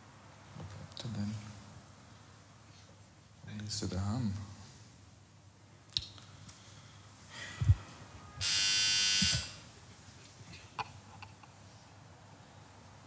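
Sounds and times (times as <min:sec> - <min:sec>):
doorbell buzzer: 0:08.4 - 0:09.6.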